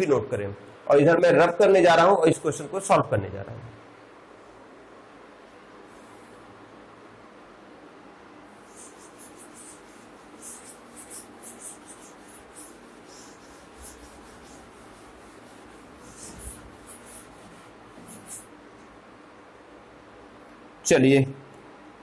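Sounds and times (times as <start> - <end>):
cloth wiping a chalkboard: 8.6 - 18.5.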